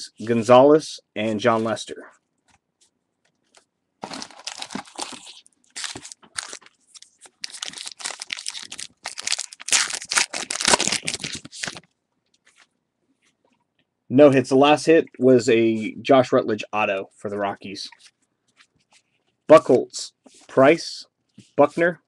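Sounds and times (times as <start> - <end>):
foil wrapper crinkling and tearing: 4.0 - 11.9.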